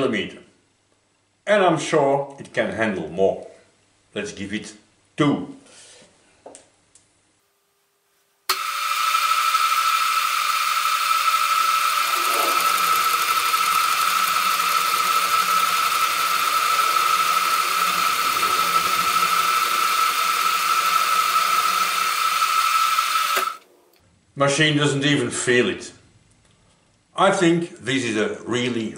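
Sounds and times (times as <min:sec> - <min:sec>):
milling machine cutting with whine: 0:08.5 - 0:23.6.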